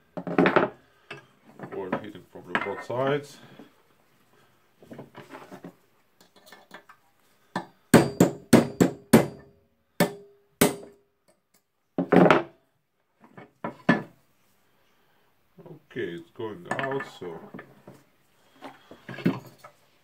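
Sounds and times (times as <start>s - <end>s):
hammer striking metal punch: 8.0s - 11.0s.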